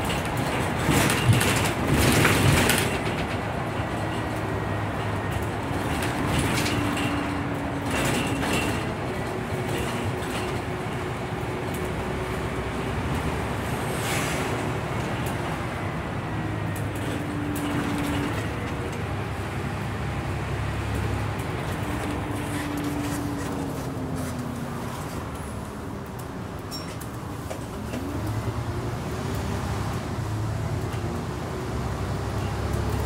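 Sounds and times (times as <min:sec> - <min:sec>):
bus body knocks and rattles: 0:00.0 - 0:12.2, 0:14.5 - 0:25.4
bus engine and road drone: 0:00.0 - 0:33.0.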